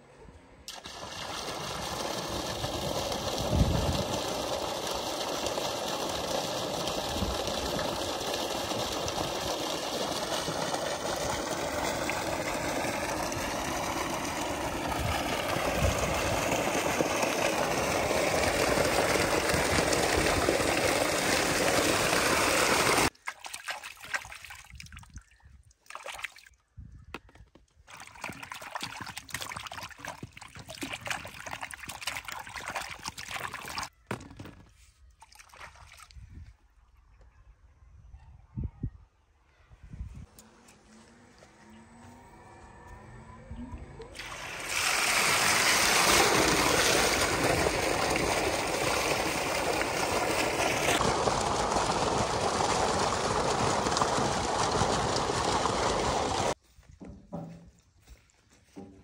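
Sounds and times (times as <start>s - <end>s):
water gushing from pipe: 0.7s - 25.2s, 27.9s - 33.9s, 44.1s - 56.6s.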